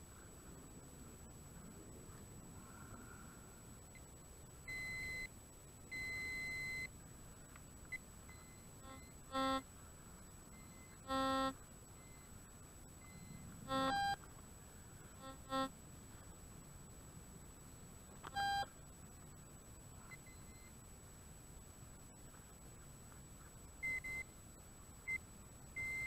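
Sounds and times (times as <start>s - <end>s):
metal detector low buzzy tones: 4.6s - 5.3s, 7.9s - 9.7s, 10.5s - 12.4s, 13.0s - 14.3s, 15.2s - 15.8s, 17.7s - 18.7s
metal detector high-pitched beeps: 4.7s - 5.3s, 5.9s - 6.9s, 7.9s - 9.6s, 10.5s - 12.3s, 13.0s - 14.2s, 15.2s - 15.7s, 18.2s - 18.7s, 20.1s - 20.8s, 23.8s - 24.4s, 25.8s - 26.0s.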